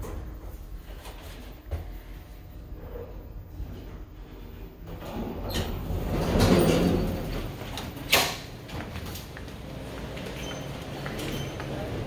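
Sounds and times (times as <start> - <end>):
elevator doors sliding open: 2.7 - 12.0.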